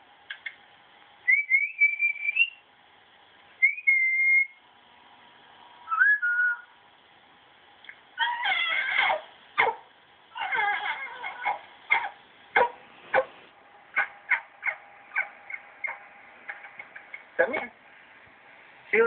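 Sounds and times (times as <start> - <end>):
person whistling to a dog: 1.3 - 2.6, 3.6 - 4.6, 5.9 - 6.7.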